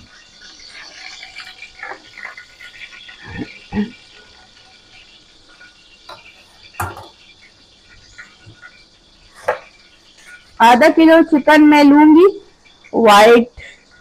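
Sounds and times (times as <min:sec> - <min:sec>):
objects knocking on counter: 0:06.1 - 0:07.2, 0:09.4 - 0:09.7.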